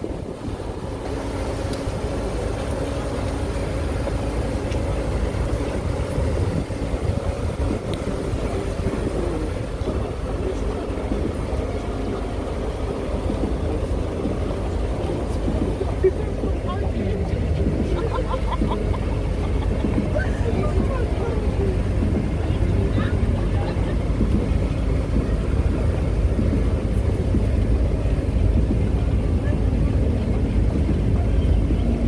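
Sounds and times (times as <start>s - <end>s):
vehicle engine rumbling: 0.0s - 32.0s.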